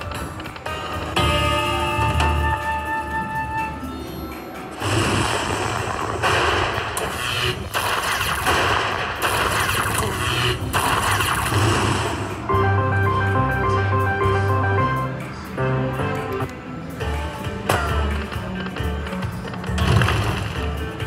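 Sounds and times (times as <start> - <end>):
slot machine electric zap: 4.7 - 12.5
slot machine chiming jingle: 12.5 - 15.8.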